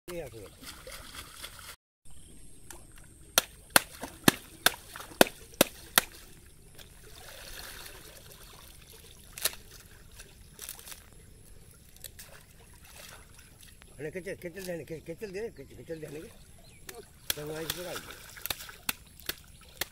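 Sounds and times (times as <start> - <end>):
water sloshing and dripping: 0.1 - 1.8, 2.7 - 14.8, 16.0 - 19.9
wet fibre slapping on water: 3.4 - 7.9, 9.3 - 11.0, 16.8 - 19.9.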